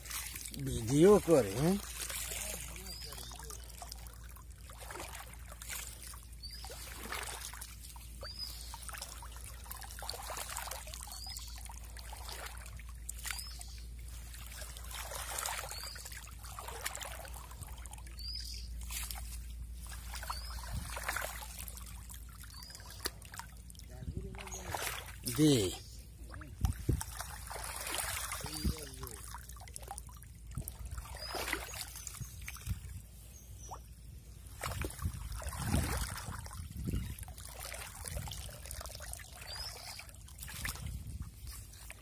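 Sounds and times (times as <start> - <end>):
water trickling and splashing: 0.0 - 42.0
bird chirping: 0.6 - 4.1, 6.3 - 9.4, 11.0 - 12.0, 13.2 - 14.0, 20.2 - 21.2, 22.4 - 26.5, 39.4 - 40.2.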